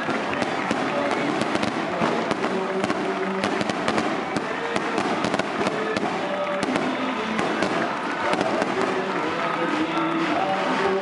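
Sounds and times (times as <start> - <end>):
firecrackers popping: 0.0 - 11.0
large crowd noise: 0.0 - 11.0.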